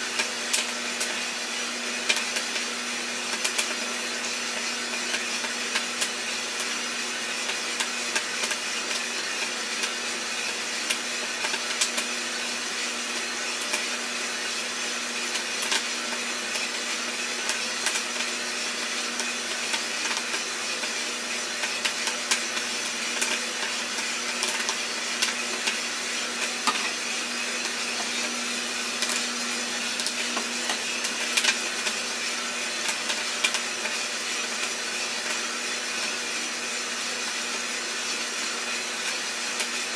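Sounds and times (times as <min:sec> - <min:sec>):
roaster motor and fan hum: 0:00.0 - 0:39.9
coffee beans cracking: 0:07.5 - 0:12.4, 0:15.2 - 0:36.2.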